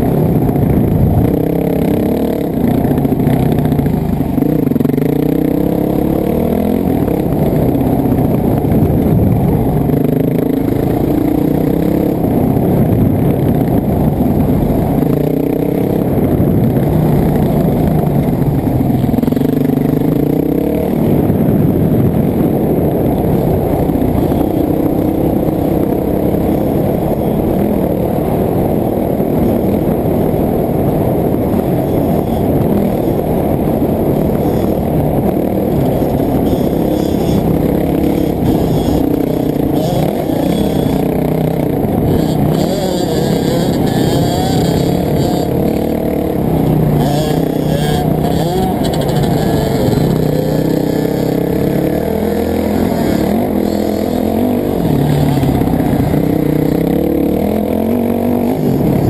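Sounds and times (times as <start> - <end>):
dirt bike engine revving: 0.0 - 59.0
scraping and clattering: 35.8 - 41.1.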